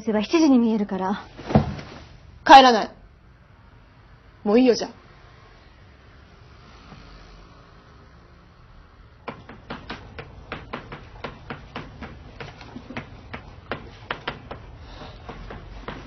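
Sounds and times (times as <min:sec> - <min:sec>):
rapid sharp taps and clicks: 0:09.2 - 0:16.0.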